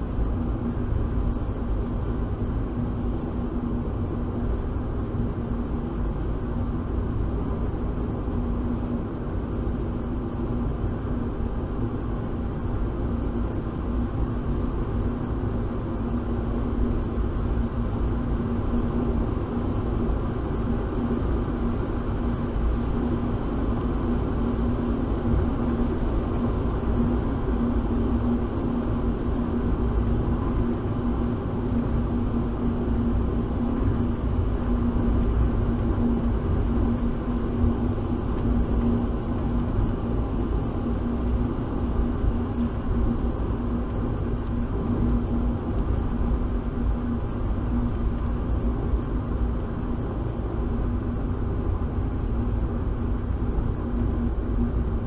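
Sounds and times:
car engine and tyre drone: 0:00.0 - 0:55.0
constant low hum: 0:00.0 - 0:55.0.

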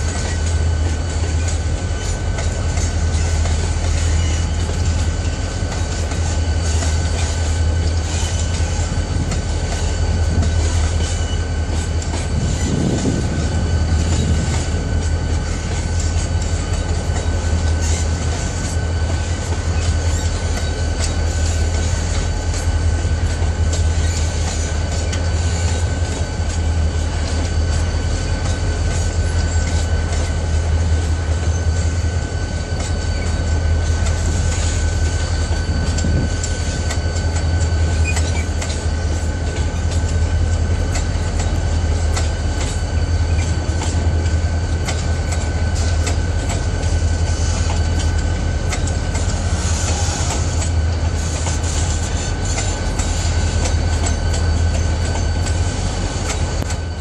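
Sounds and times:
clickety-clack over rail joints: 0:00.0 - 0:57.0
train wheels rumbling on rail: 0:00.0 - 0:57.0
high-pitched wheel squeal: 0:01.3 - 0:09.1, 0:09.7 - 0:22.3, 0:31.4 - 0:39.7.

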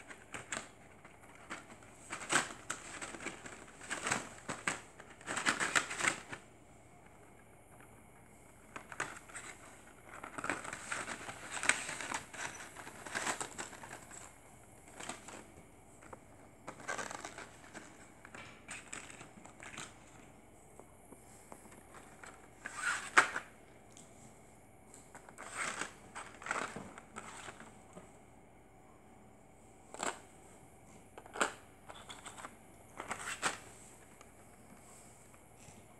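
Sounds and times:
plastic packaging crinkling: 0:00.0 - 0:06.5, 0:08.5 - 0:20.3, 0:25.1 - 0:27.7.

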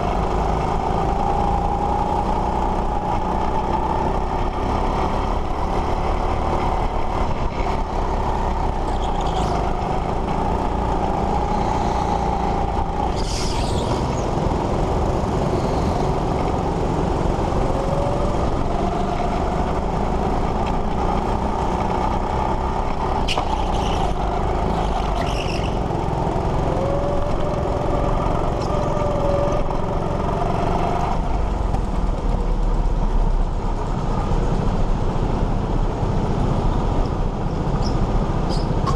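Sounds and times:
go-kart engine revving: 0:00.0 - 0:33.3
high-pitched squeals: 0:11.1 - 0:14.3.

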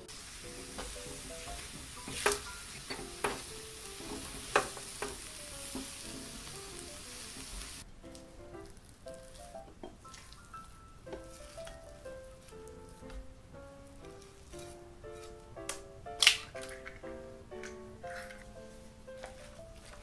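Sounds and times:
spatula stirring dough: 0:00.0 - 0:06.5, 0:08.2 - 0:13.3, 0:13.9 - 0:15.4, 0:18.0 - 0:20.0
dough sizzling in a pan: 0:00.0 - 0:15.5
spatula knocking against pan: 0:00.7 - 0:03.5, 0:04.1 - 0:05.9.

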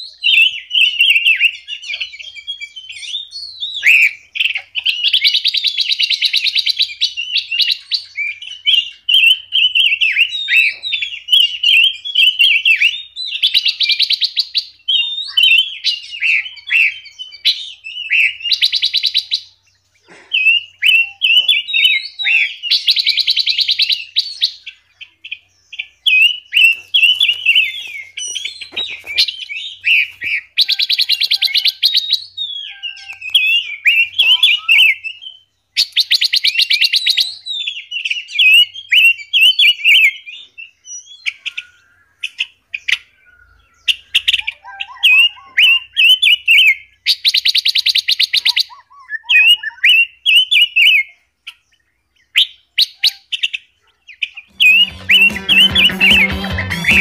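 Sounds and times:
songbirds twittering: 0:00.0 - 0:56.5
fast buzzy bird trill: 0:26.1 - 0:35.1, 0:43.8 - 0:46.7, 0:54.5 - 0:57.0.

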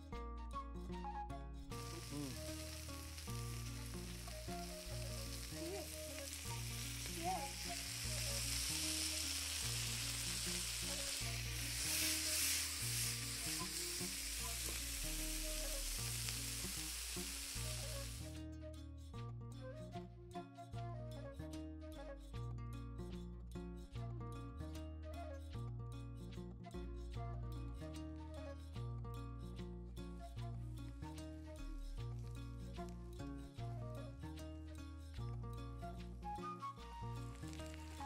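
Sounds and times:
quiet background music: 0:00.0 - 0:38.0
insects sizzling in a pot: 0:01.7 - 0:18.3, 0:37.1 - 0:38.0.

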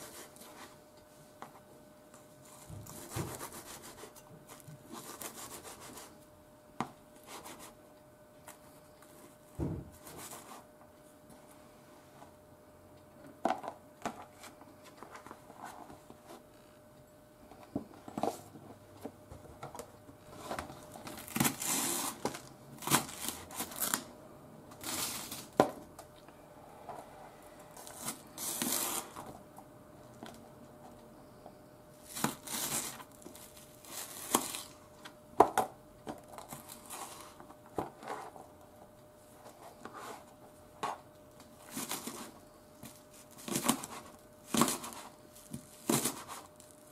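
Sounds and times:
plastic crinkling and rustling: 0:19.6 - 0:24.1, 0:32.0 - 0:34.8.

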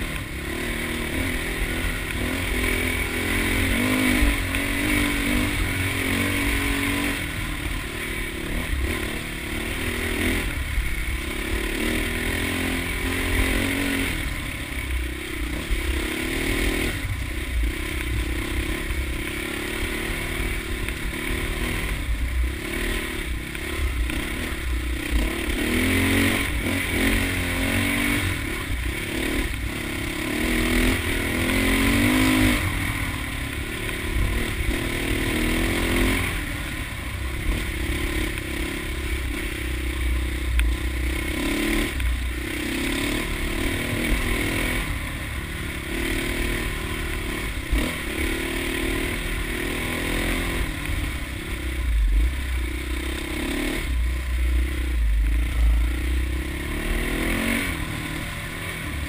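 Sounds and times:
constant low rumble: 0:00.0 - 0:59.0
dirt bike engine revving: 0:00.0 - 0:59.0.

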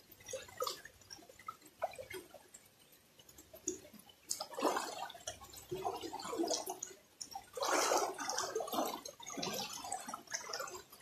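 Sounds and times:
legs splashing in river water: 0:04.3 - 0:05.2, 0:07.6 - 0:10.8.

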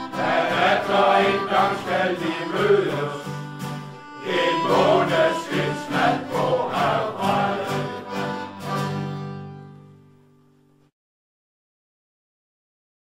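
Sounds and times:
choir-like vocals: 0:00.0 - 0:03.4, 0:04.2 - 0:08.2
song with steady beat: 0:04.2 - 0:08.7.

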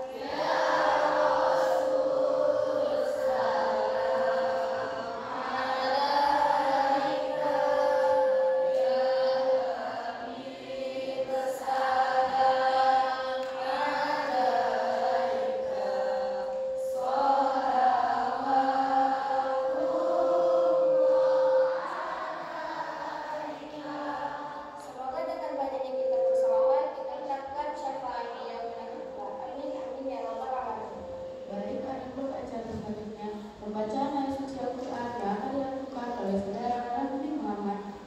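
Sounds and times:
person chanting: 0:00.0 - 0:29.4
steady drone tone: 0:00.0 - 0:38.0.

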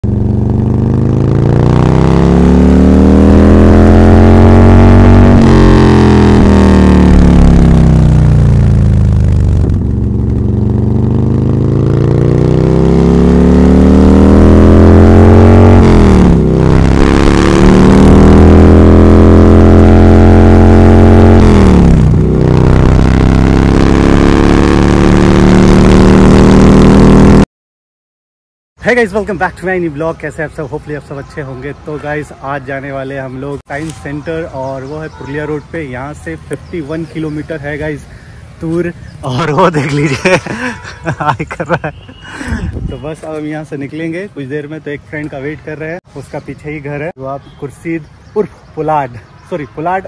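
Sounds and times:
motorcycle engine revving: 0:00.0 - 0:27.4, 0:34.8 - 0:44.1.

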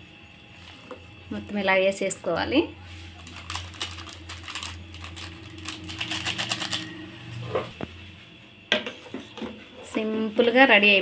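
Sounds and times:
steady low hum: 0:00.0 - 0:11.0
plastic sachet ticks and crinkles: 0:03.2 - 0:06.8.

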